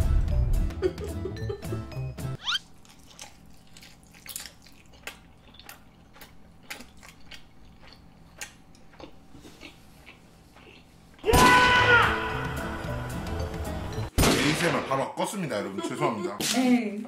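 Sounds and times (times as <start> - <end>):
short rising squeal: 2.4 - 2.6
person chewing with wet smacks: 2.6 - 11.2.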